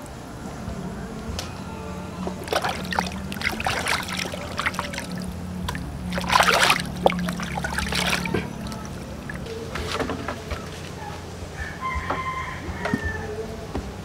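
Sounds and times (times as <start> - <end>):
water sloshing in plastic basin: 2.2 - 11.1.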